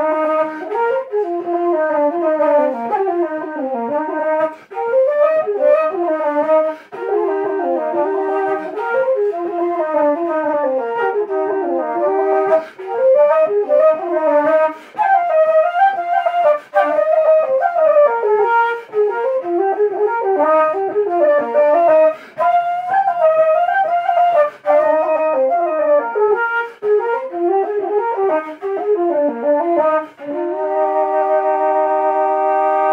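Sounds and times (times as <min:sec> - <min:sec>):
wooden flutes playing jig: 0:00.0 - 0:32.9
quick breaths: 0:06.7 - 0:07.0, 0:14.7 - 0:15.0, 0:22.1 - 0:22.4.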